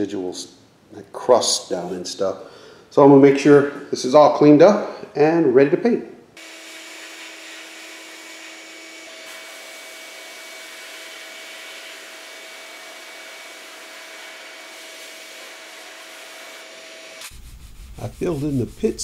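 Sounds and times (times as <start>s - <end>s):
sandblasting air hiss: 9.2s - 12.4s, 13.0s - 19.0s.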